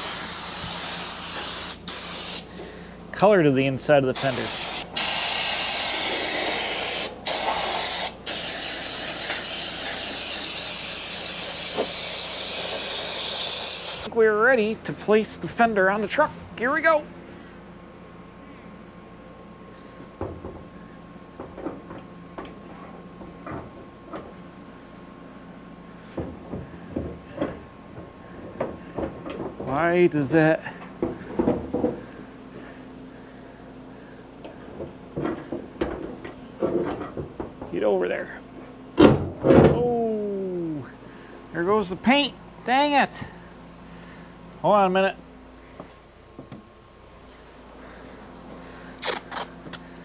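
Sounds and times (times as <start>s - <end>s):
spray gun hissing: 0.0s - 2.5s, 4.2s - 14.1s
steady hum: 0.0s - 50.0s.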